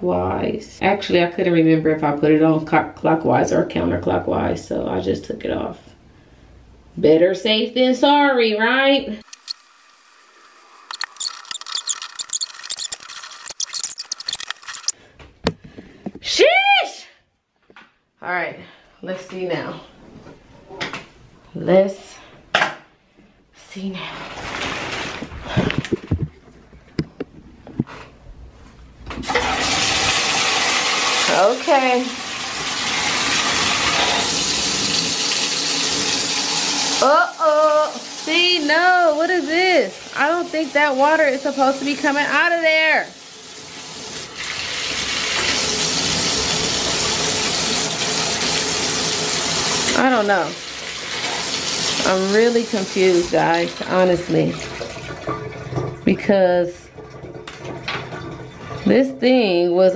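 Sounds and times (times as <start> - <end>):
tape rubbing on threaded pipe: 10.9 - 15.0
water running into bathtub: 29.2 - 59.8.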